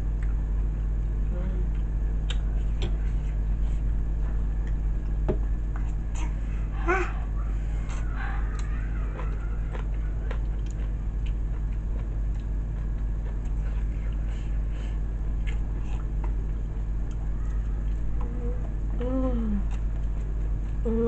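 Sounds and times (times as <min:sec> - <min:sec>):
chewing and eating: 0:00.0 - 0:21.0
steady low hum: 0:00.0 - 0:21.0.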